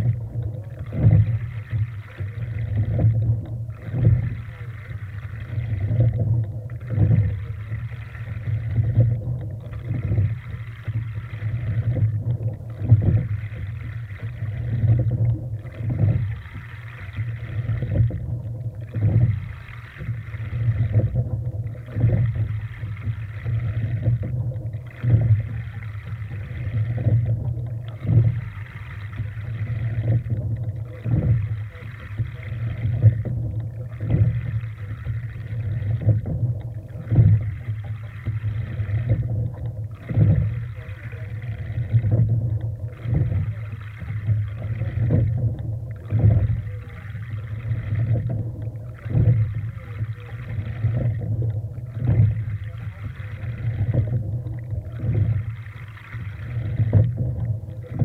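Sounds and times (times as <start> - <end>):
low rumble: 0.0 - 58.0
water rushing along hull: 0.0 - 58.0.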